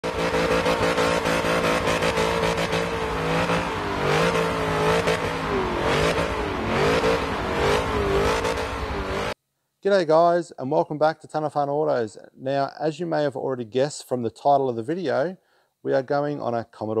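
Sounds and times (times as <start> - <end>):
car engine revving: 0.0 - 9.4.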